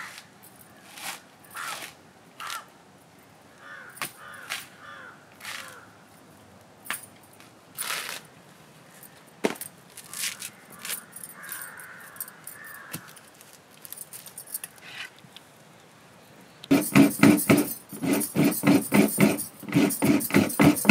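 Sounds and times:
coconut husk scraping and knocking: 0:00.0 - 0:02.0, 0:07.8 - 0:08.2, 0:16.7 - 0:20.9
crows cawing: 0:01.6 - 0:01.8, 0:02.4 - 0:02.7, 0:03.6 - 0:06.0, 0:10.1 - 0:13.2.

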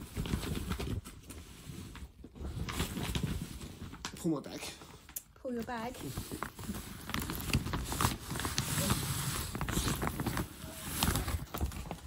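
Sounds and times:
plastic gift bag crinkling: 0:05.7 - 0:12.0.

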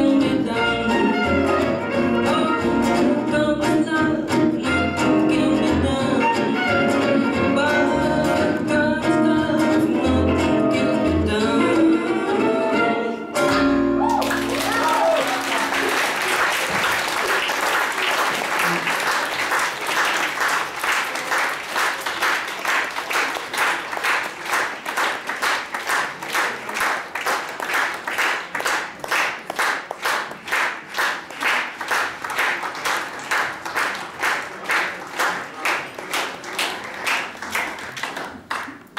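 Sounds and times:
audience clapping in unison: 0:14.0 - 0:38.9.

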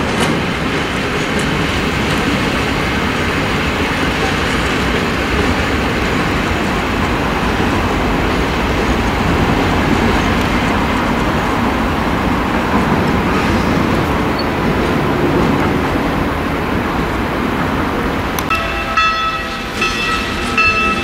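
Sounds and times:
freight train rumbling: 0:00.0 - 0:21.0.

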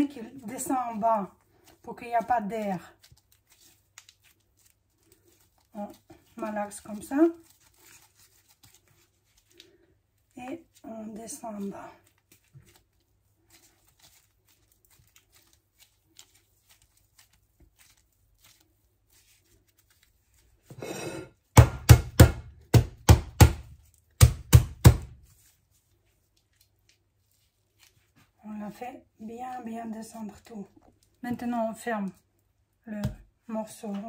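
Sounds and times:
sausage knocked with loud thumps: 0:21.5 - 0:25.2.

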